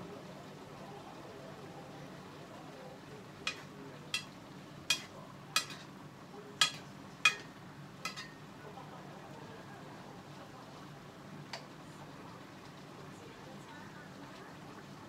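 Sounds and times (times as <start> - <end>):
stew being stirred: 3.0 - 8.5
utensil knocking against pot: 4.9 - 5.9, 6.6 - 7.5, 8.1 - 8.4.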